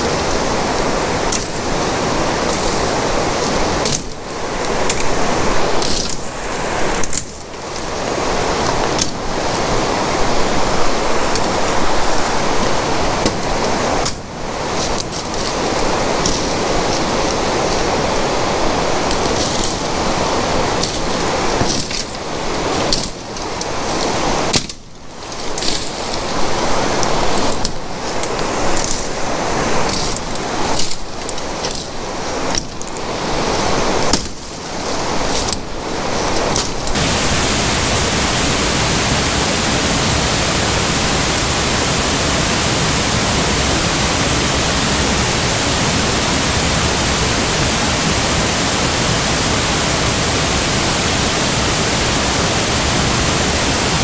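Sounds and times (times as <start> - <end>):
flowing water: 0.0 - 54.0
leaves rustling: 0.0 - 54.0
branches snapping and swishing: 1.2 - 9.7, 12.6 - 18.3, 18.9 - 37.0.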